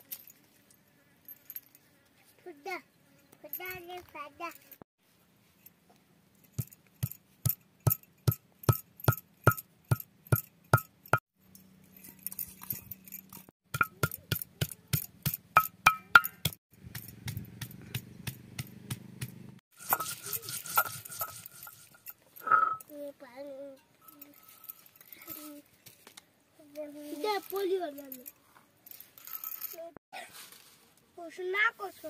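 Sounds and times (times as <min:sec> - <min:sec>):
stone roller striking stone slab: 0:07.0 - 0:10.9, 0:13.7 - 0:18.0, 0:18.6 - 0:22.8
gritty stone grinding: 0:19.8 - 0:22.8.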